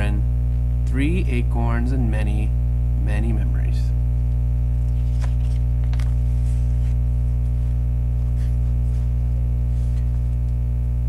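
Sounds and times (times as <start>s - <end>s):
electrical hum: 0.0s - 11.0s
paper page rustling: 4.8s - 10.5s.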